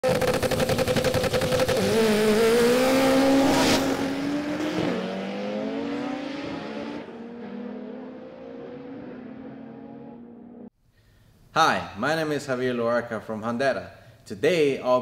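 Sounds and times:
car engine accelerating hard: 0.0 - 10.7.

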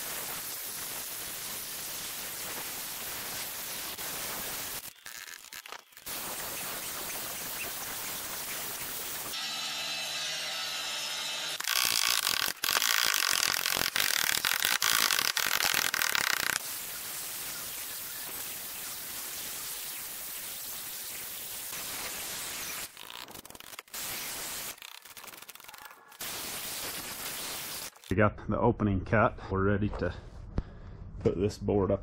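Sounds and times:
angle grinder cutting masonry: 8.4 - 14.4.

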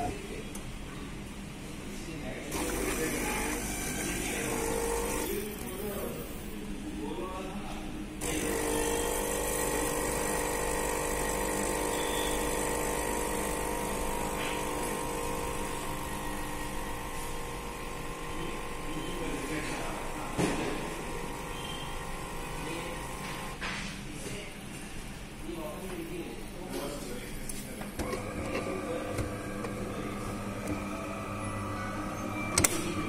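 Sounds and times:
coffee machine pump humming: 2.5 - 6.6, 8.2 - 23.6, 28.0 - 33.0
coffee pouring into cup: 8.4 - 18.9.

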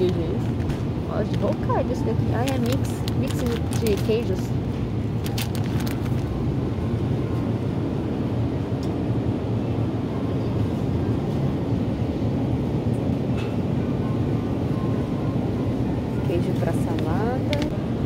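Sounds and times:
supermarket background rumble: 0.0 - 18.0
plastic package crinkling: 2.4 - 4.4, 5.2 - 6.3.

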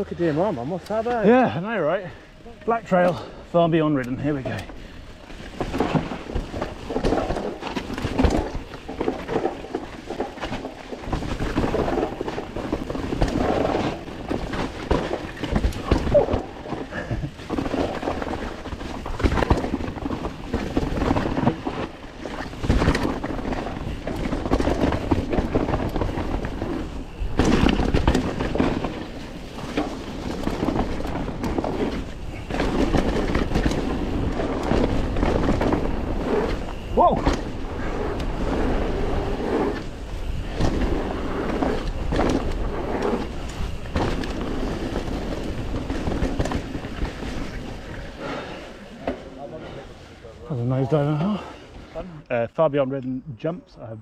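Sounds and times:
bike rattling: 0.0 - 52.2
bike tyres rumbling on dirt: 0.0 - 52.2
bike landing knocks and thuds: 17.5 - 37.6, 43.6 - 47.4.

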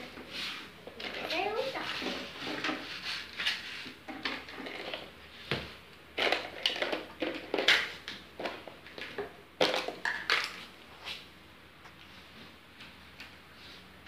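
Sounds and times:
plastic toys clattering: 0.9 - 5.1, 6.2 - 10.7.

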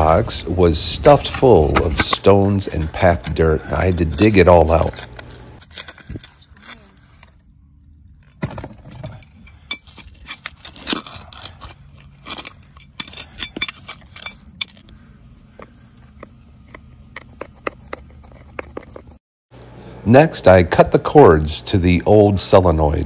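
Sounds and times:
trowel scraping dirt: 0.0 - 7.2, 9.5 - 14.9.

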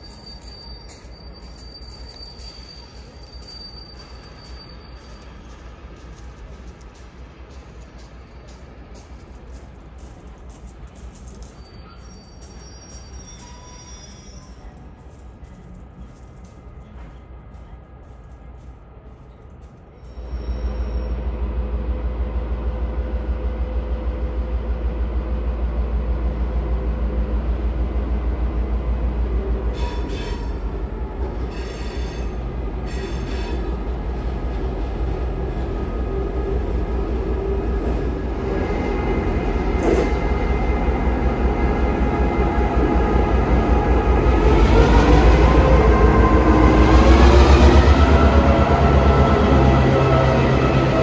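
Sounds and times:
wheel squeal: 0.0 - 5.7, 11.3 - 14.8
diesel locomotive engine rumble: 0.0 - 51.0.

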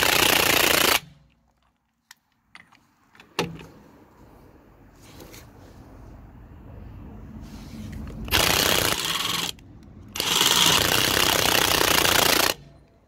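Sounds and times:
impact wrench hammering: 10.2 - 12.6.

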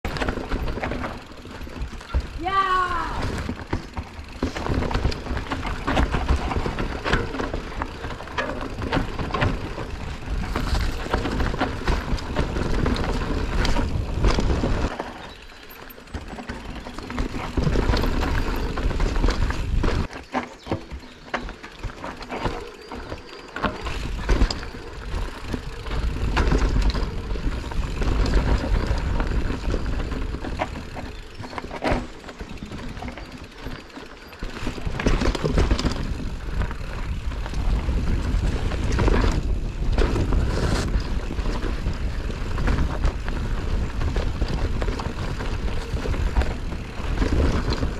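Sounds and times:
bike rattling with sharp knocks: 0.0 - 47.9
bike tyres rolling on dirt: 0.0 - 47.9
wind rumble on microphone: 2.2 - 15.0, 34.6 - 47.9.

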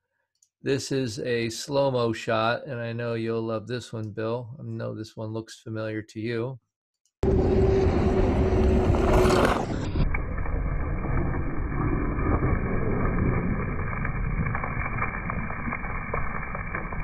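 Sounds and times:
steady whine: 7.2 - 17.0.

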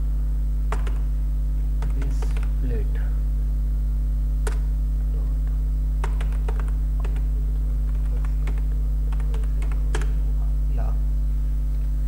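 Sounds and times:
steady low hum: 0.0 - 12.0
keyboard typing: 0.7 - 1.1, 1.8 - 2.6, 4.4 - 4.7, 6.0 - 10.2.

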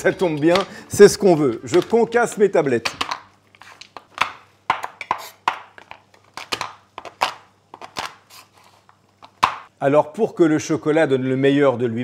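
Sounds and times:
knife chopping chocolate on wooden board: 4.1 - 7.4, 9.4 - 9.7.

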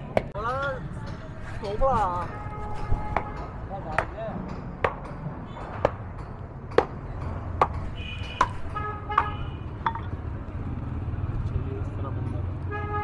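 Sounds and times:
cleaver chopping hooves: 0.1 - 9.4
vehicle horns honking: 2.0 - 3.7, 7.9 - 9.8, 12.6 - 13.0.

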